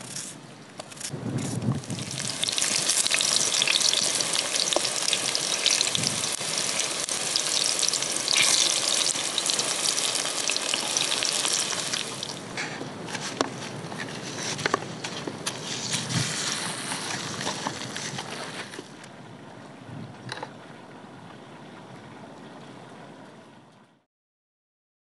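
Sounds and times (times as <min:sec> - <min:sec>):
slices frying in hot oil: 0:01.5 - 0:12.6, 0:15.7 - 0:18.5.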